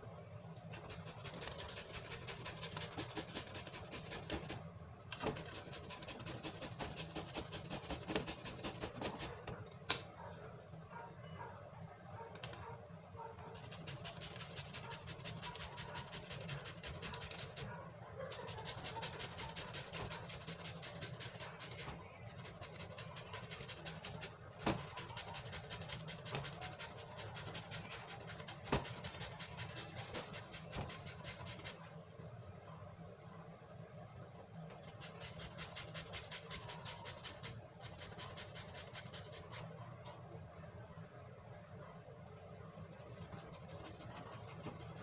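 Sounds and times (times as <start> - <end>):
papaya scraping on metal grater: 0.8 - 4.6, 5.3 - 9.3, 13.6 - 17.7, 18.5 - 31.8.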